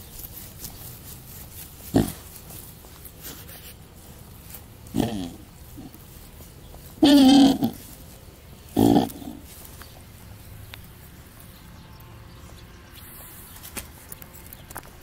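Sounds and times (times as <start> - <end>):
young goat bleating: 7.0 - 7.9.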